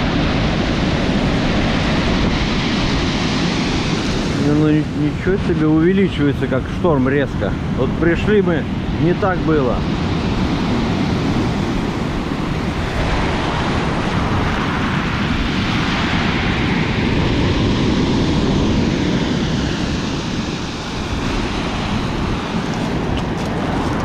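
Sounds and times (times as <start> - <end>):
surf breaking on pebble beach: 21.0 - 24.0.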